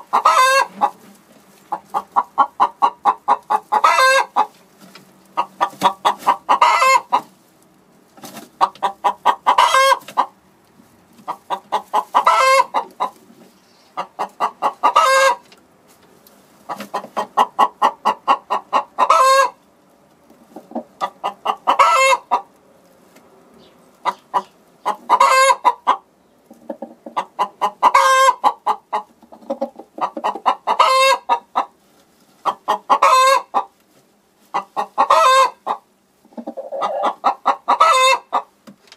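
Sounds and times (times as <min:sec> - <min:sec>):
hen cackling: 0:00.0 - 0:01.0, 0:01.7 - 0:04.5, 0:05.4 - 0:07.3, 0:08.6 - 0:10.3, 0:11.3 - 0:13.2, 0:13.9 - 0:15.5, 0:16.7 - 0:19.6, 0:20.6 - 0:22.5, 0:23.6 - 0:31.7, 0:32.4 - 0:33.7, 0:34.5 - 0:38.5.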